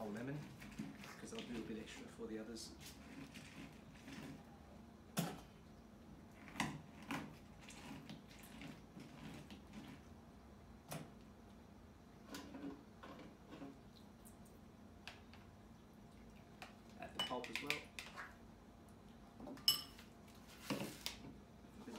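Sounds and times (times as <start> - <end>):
faint steady hum: 0.0 - 21.9
knocks and clicks of bowls: 16.6 - 18.3.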